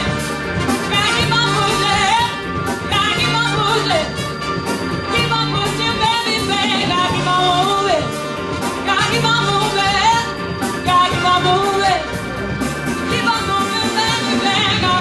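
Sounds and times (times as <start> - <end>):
bass: 0.0 - 15.0
drums: 0.0 - 15.0
horn section: 0.0 - 15.0
sliding lead melody: 0.0 - 15.0.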